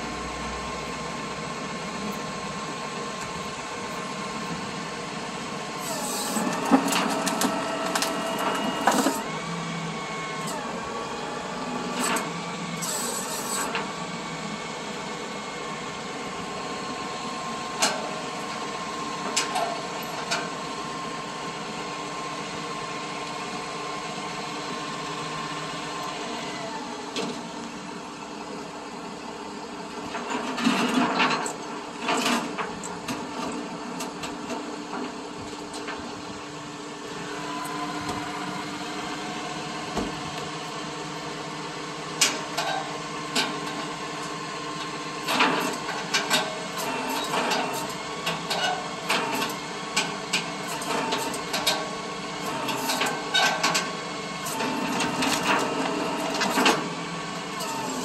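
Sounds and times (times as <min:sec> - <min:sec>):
winch humming: 0:37.0 - 0:42.1.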